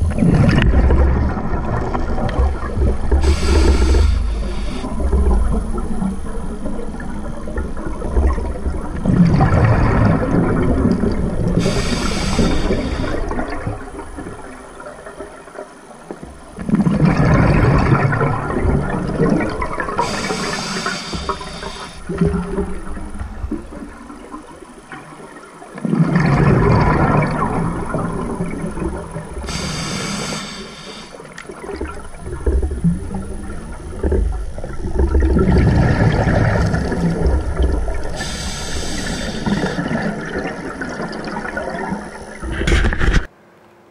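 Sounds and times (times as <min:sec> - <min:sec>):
bubbling exhaust underwater: 0:00.0 - 0:43.3
regulator hissing on inhale: 0:03.2 - 0:04.9, 0:11.6 - 0:13.4, 0:20.0 - 0:22.1, 0:29.4 - 0:31.4, 0:38.0 - 0:40.1.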